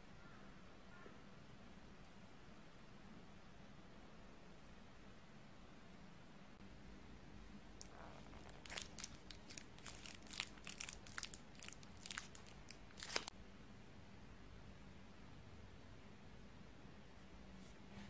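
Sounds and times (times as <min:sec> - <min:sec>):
paper cupcake liner crinkling: 0:07.8 - 0:13.3.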